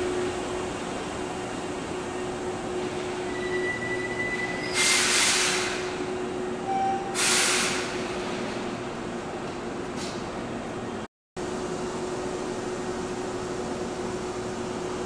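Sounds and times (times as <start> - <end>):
train hum: 0.0 - 15.0
high squeal: 3.2 - 5.8
compressed air hiss: 4.7 - 6.0, 7.2 - 8.0.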